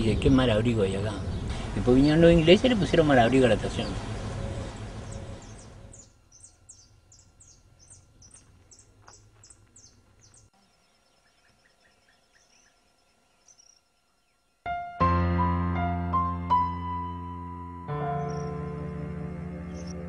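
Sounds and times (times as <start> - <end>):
faint outdoor ambience: 0.0 - 20.0
small bird chirping: 3.7 - 14.7, 18.1 - 18.7, 19.7 - 20.0.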